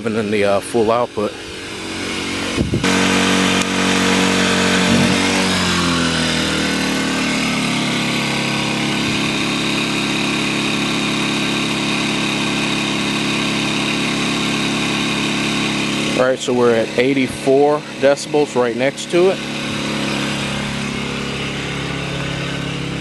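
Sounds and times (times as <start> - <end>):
generator engine running: 0.0 - 23.0.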